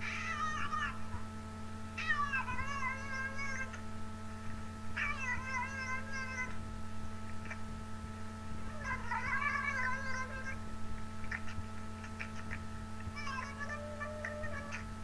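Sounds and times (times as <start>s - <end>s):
cat meowing: 0.0s - 1.0s, 2.0s - 3.7s, 8.7s - 10.6s, 13.2s - 14.8s.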